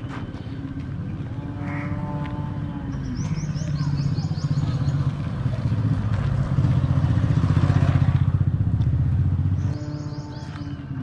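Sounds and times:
motorcycle engine running: 0:03.1 - 0:10.9.

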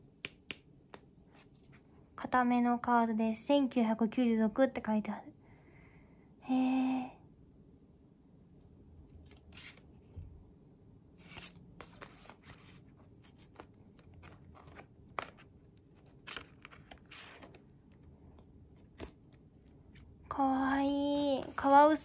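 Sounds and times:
light card clicks and taps: 0:00.2 - 0:01.7
paper cards rustling: 0:09.1 - 0:10.0, 0:11.2 - 0:20.1.

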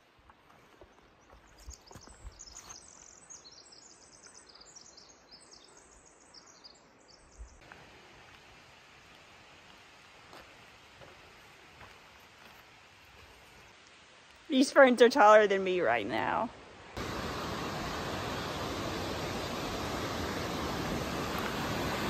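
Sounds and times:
songbird singing: 0:00.7 - 0:07.8
steady hiss: 0:07.6 - 0:22.0.

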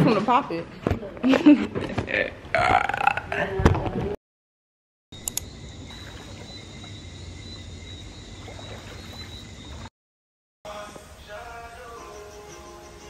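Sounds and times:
frogs or insects chorus: 0:05.2 - 0:09.9, 0:10.7 - 0:13.0
water sloshing around swimmer: 0:05.9 - 0:07.0, 0:08.3 - 0:09.9.

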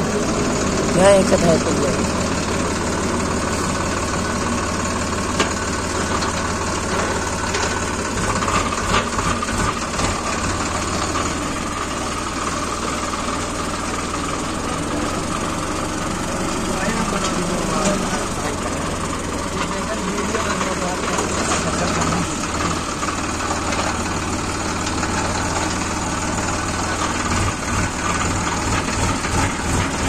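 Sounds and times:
tractor diesel engine running: 0:00.0 - 0:30.0
sharp knocks and rattles: 0:03.6 - 0:11.4.

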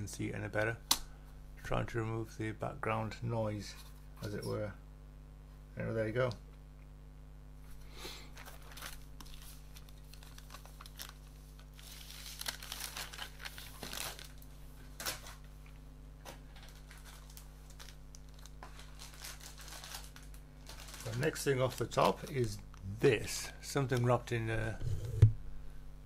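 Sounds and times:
plastic bag crinkling: 0:08.3 - 0:15.4, 0:16.5 - 0:22.7.

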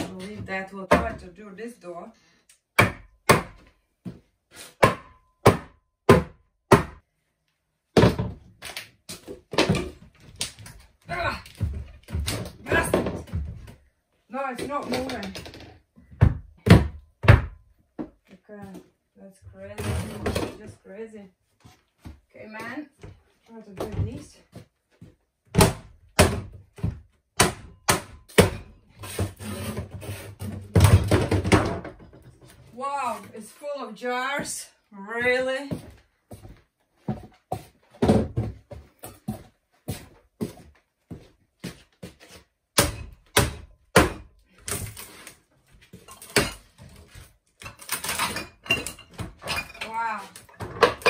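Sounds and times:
wood scraping: 0:29.0 - 0:30.8.

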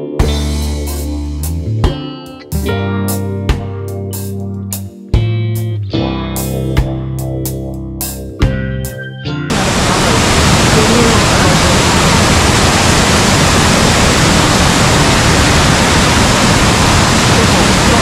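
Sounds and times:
guitar music: 0:00.0 - 0:09.8
waterfall roar: 0:09.5 - 0:18.0.

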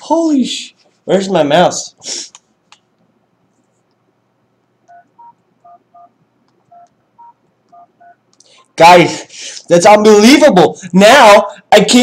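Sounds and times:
telephone keypad beeps: 0:04.9 - 0:06.1, 0:06.7 - 0:08.2.

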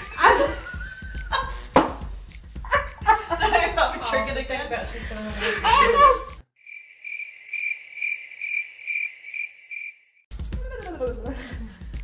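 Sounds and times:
cricket chirping: 0:06.6 - 0:10.3.

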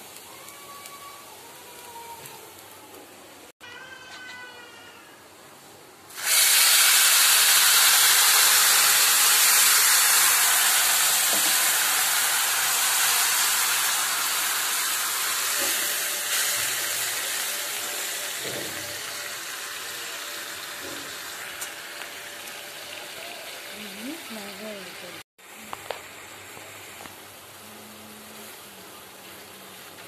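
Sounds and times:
oil sizzling and bubbling: 0:00.0 - 0:05.0, 0:06.1 - 0:30.0
water poured into hot pan: 0:06.1 - 0:21.7.

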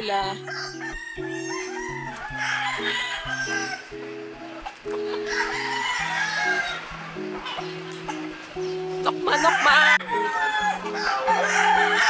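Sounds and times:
background music with low notes: 0:00.0 - 0:12.0
chickens clucking: 0:00.0 - 0:12.0
roosters crowing: 0:00.2 - 0:12.0.

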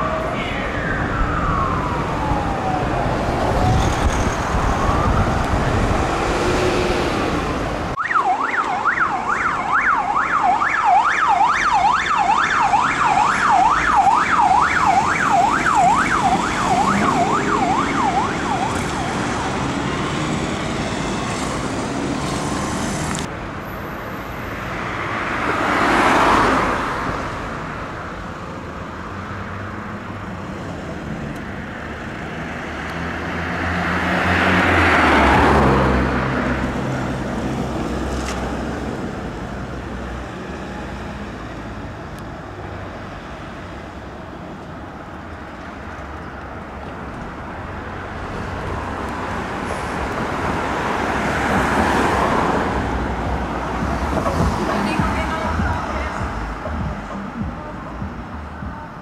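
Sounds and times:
yelp siren: 0:00.0 - 0:05.8, 0:08.0 - 0:20.0
road traffic noise: 0:00.0 - 0:59.0
vehicle passing: 0:32.2 - 0:42.0.

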